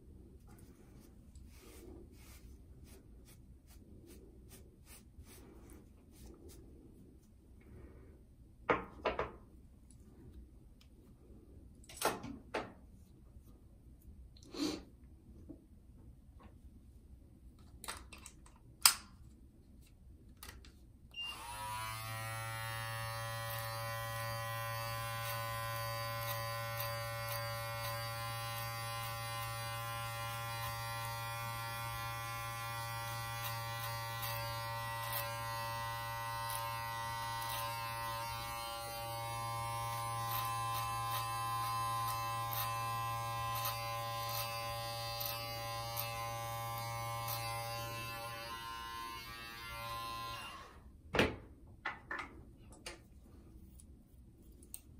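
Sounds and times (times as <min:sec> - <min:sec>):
beard trimmer buzzing: 0:21.2 - 0:50.7.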